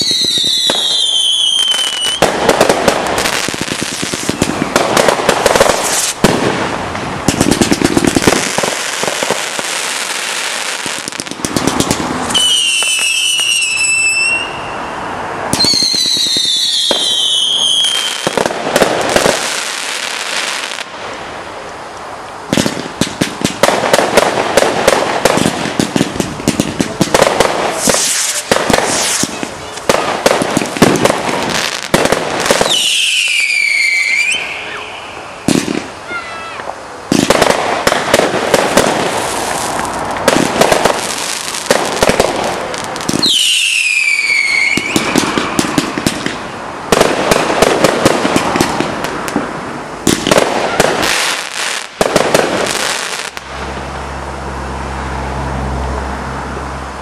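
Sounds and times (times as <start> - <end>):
firework whistles falling in pitch: 0.0 - 2.3, 12.3 - 18.4, 32.4 - 36.7, 43.1 - 46.1
firework bangs and crackling: 0.0 - 57.0.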